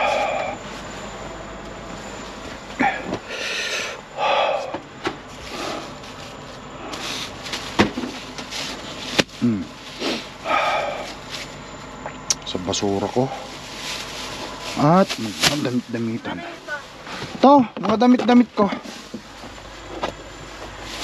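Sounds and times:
rustling and handling noises: 5.2 - 11.7, 12.9 - 21.0.

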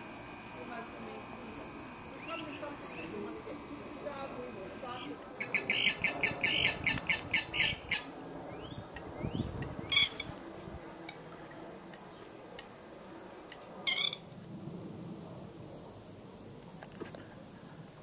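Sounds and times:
gallinule calling: 5.4 - 10.3.

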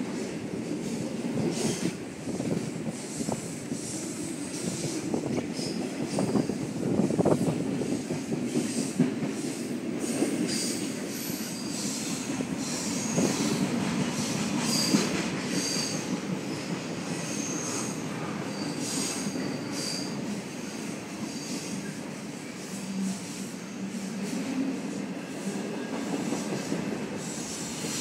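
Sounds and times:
train wheels rumbling on rail: 0.0 - 28.0
high-pitched wheel squeals: 17.2 - 20.2.

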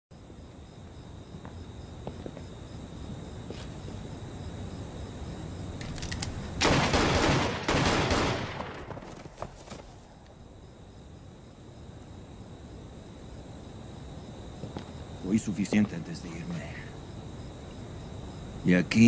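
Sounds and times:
crickets chirring: 0.1 - 19.0
sharp clicks: 5.8 - 6.4.

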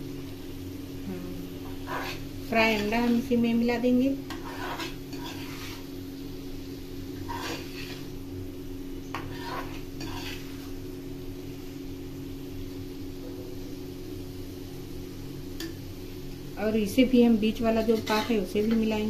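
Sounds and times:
low hum: 0.0 - 4.0
metal spatula scraping a pan: 1.6 - 3.2, 4.2 - 6.0, 7.2 - 8.2, 9.1 - 10.8, 17.8 - 18.9.

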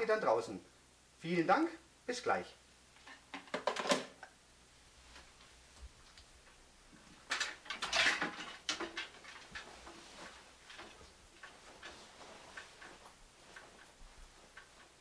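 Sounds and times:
fabric rustling and clattering: 4.9 - 15.0.

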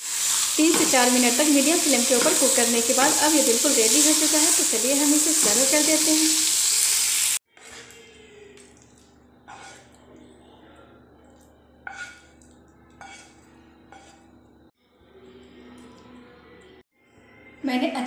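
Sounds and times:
spatula scraping frying pan: 0.0 - 8.0, 9.4 - 10.0, 11.8 - 14.4
pan clinking against plate: 11.9 - 12.4.

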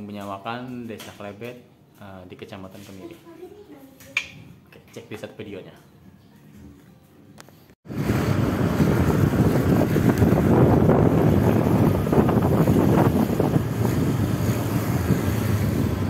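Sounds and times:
wind buffeting microphone: 7.9 - 16.0.

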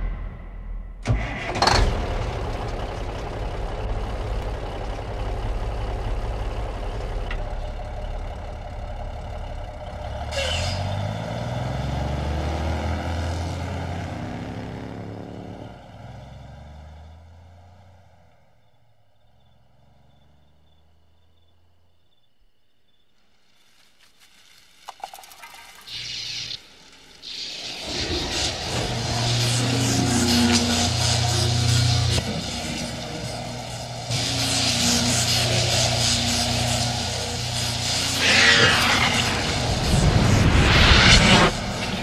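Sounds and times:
diesel truck engine running: 1.0 - 21.7, 26.4 - 42.0
sharp engine bursts: 25.9 - 42.0.

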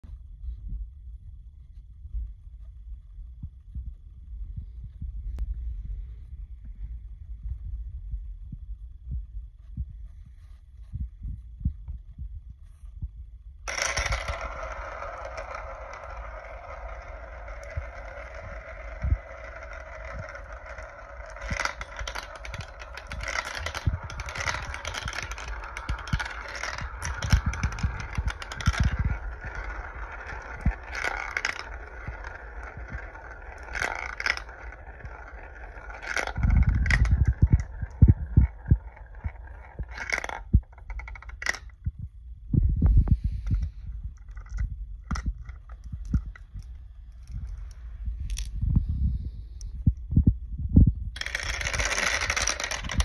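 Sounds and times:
marbles rolling through plastic tubes: 13.6 - 42.0, 42.8 - 50.0, 51.1 - 53.0
marbles clacking and clattering: 13.7 - 41.8, 43.4 - 48.6, 51.2 - 53.0.

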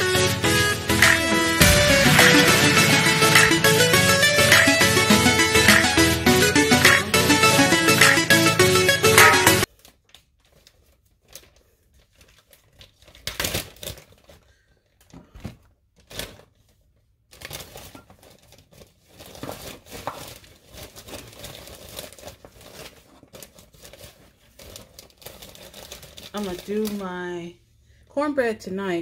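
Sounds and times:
plastic bag crinkling: 9.6 - 15.1, 15.9 - 27.4.

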